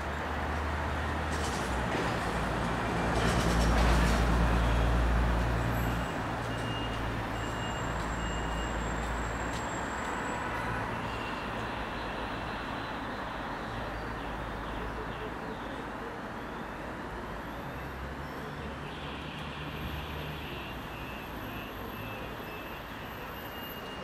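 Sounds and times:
heavy vehicle engine rumbling: 0.0 - 13.0
city traffic passing: 0.0 - 24.0.

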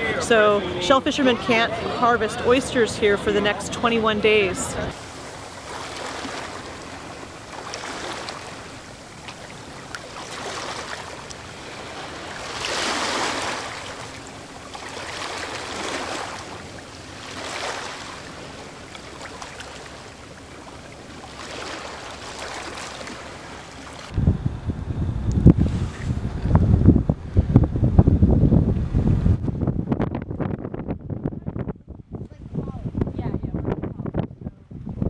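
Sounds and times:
small waves lapping: 0.0 - 24.2.

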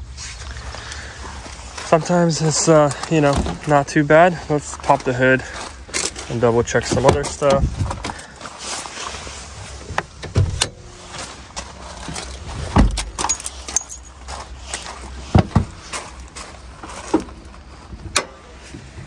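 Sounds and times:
car door shutting: 9.9 - 11.0, 12.7 - 13.4.

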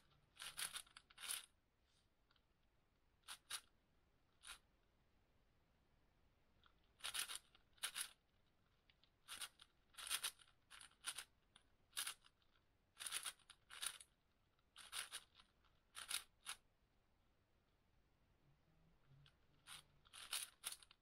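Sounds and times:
puzzle cube layers clicking: 0.4 - 1.5, 6.6 - 14.2, 14.8 - 16.6, 19.6 - 21.0.

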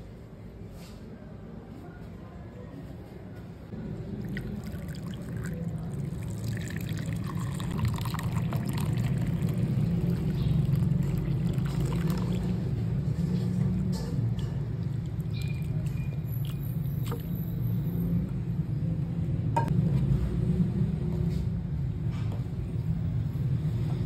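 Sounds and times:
liquid pouring and splashing: 4.1 - 13.2, 14.8 - 17.6.

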